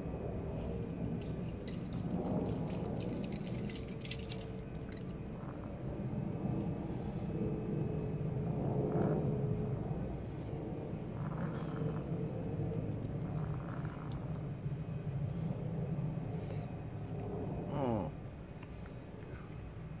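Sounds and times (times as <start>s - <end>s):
low outdoor rumble: 0.0s - 20.0s
small clicks and crackles: 1.1s - 5.2s, 11.1s - 14.4s.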